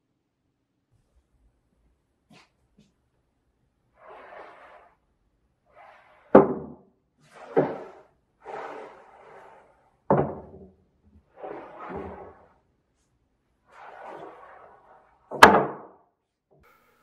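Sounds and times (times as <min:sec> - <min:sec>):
wood scraping on wood: 0:04.0 - 0:05.0, 0:05.7 - 0:06.5, 0:07.2 - 0:10.6, 0:11.2 - 0:13.1, 0:13.7 - 0:15.5
sharp wooden knocks: 0:15.3 - 0:15.9.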